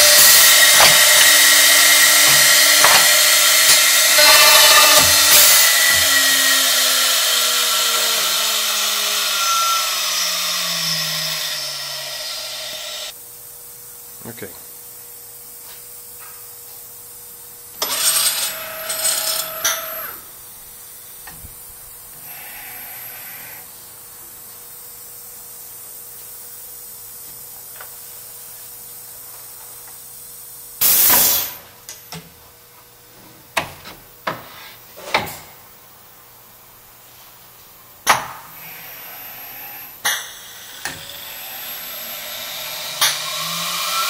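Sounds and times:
router motor whirring: 0.0s - 13.1s, 40.8s - 44.0s.

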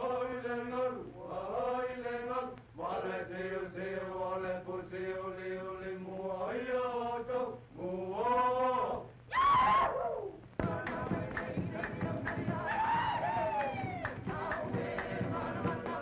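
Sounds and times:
men chanting: 10.6s - 16.0s.

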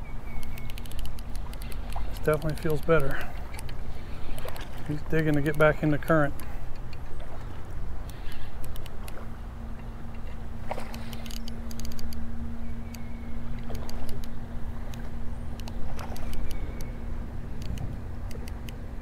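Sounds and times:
steady low hum: 0.0s - 19.0s
fishing reel clicks: 0.4s - 4.6s, 5.2s - 5.7s, 11.0s - 12.2s.

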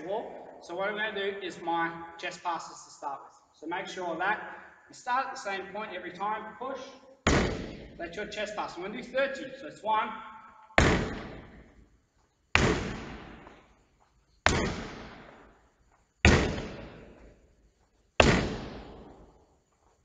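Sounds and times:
ball banging against a wall: 7.3s - 8.0s, 10.8s - 11.8s, 12.6s - 13.7s, 14.4s - 15.6s, 16.2s - 17.4s, 18.2s - 19.4s.

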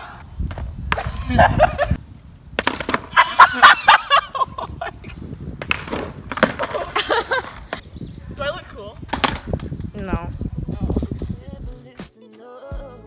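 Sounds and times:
girl laughing: 1.0s - 2.0s, 3.1s - 5.2s, 6.6s - 7.7s
skateboard clacking on asphalt: 5.6s - 7.8s.

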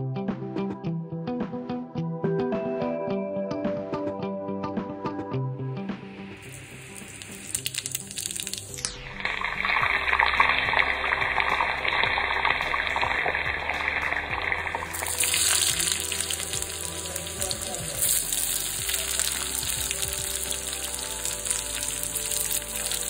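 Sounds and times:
background music: 0.0s - 23.0s
hot oil sizzling: 6.2s - 23.0s.

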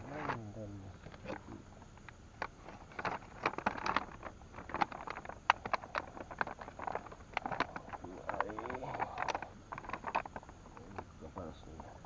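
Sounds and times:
rustling: 0.0s - 11.1s
hands clicking and knocking gear: 2.4s - 11.1s.

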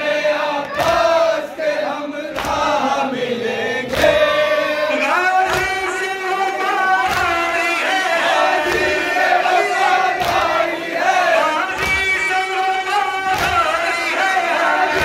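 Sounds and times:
men chanting in unison: 0.0s - 15.0s
hands beating chests: 0.7s - 1.2s, 2.3s - 2.8s, 5.1s - 15.0s.

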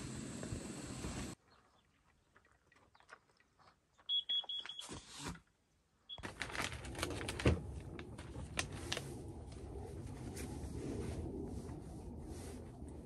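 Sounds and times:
steady hiss: 0.0s - 1.4s.

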